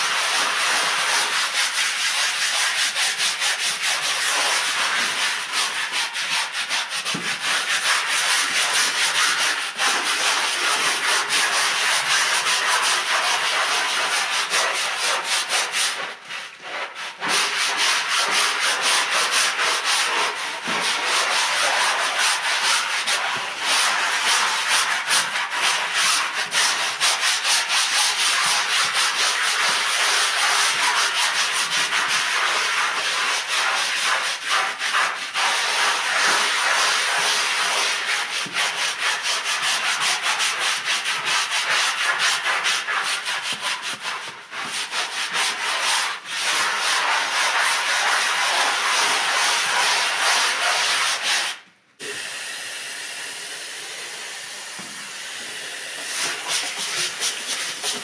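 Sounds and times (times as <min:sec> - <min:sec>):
brushes scrubbing rug: 0:00.0 - 0:52.5, 0:53.1 - 0:58.0
water spray hissing: 0:52.0 - 0:58.0.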